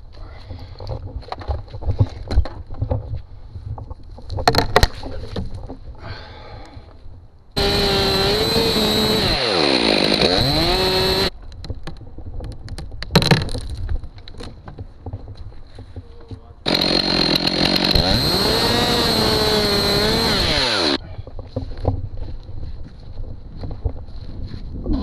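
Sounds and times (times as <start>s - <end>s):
chainsaw cutting wood: 7.6s - 11.3s, 16.7s - 21.0s.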